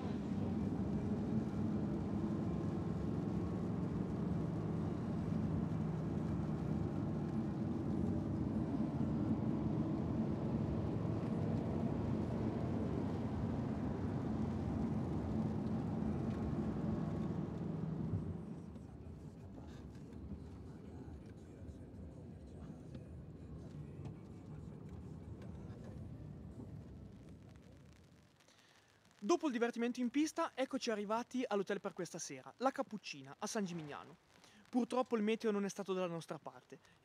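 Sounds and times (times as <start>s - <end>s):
car engine and tyre noise: 0.0s - 29.4s.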